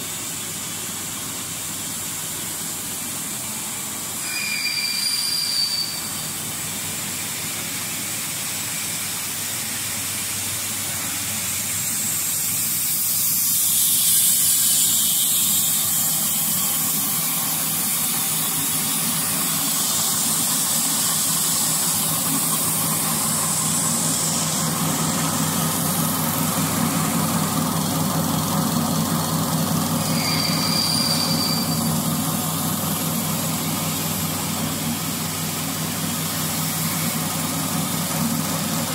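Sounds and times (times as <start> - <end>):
machine humming with hiss: 0.0 - 38.9
high whistling tone: 4.2 - 6.3, 30.1 - 32.0.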